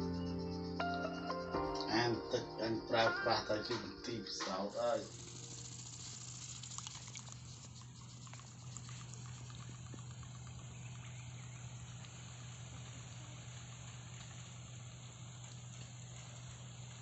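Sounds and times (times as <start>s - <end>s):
small motor humming: 4.8s - 17.0s
propeller churning water: 5.0s - 16.2s.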